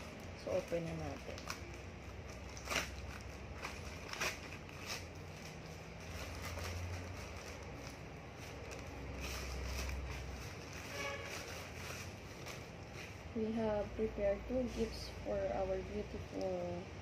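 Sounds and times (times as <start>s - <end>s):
plastic pouch tearing: 0.0s - 13.1s
plastic rustling: 0.0s - 15.7s.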